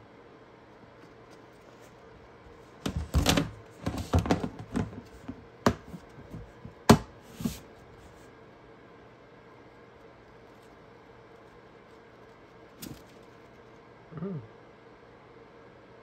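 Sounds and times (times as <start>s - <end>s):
rat scurrying on paper: 10.3s - 13.8s.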